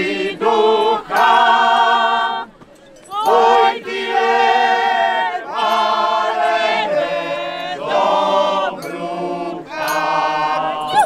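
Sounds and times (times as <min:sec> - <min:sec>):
group singing long held notes: 0:00.0 - 0:11.0.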